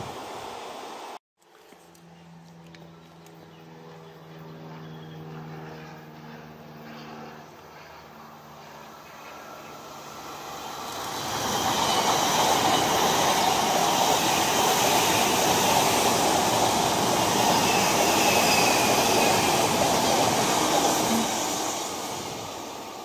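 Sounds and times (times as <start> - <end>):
electric train passing at speed: 8.3 - 23.0.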